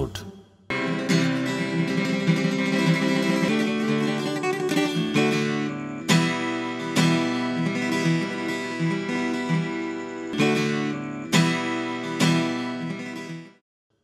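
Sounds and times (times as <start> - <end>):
strummed acoustic guitar: 0.7 - 13.6.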